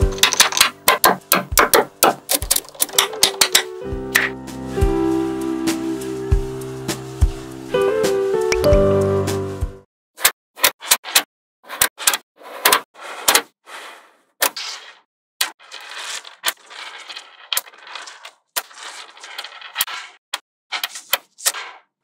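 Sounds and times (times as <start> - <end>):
magnetic balls snapping together: 0.0 - 4.3
rattling clicks of rolling balls: 0.0 - 4.3, 15.4 - 21.9.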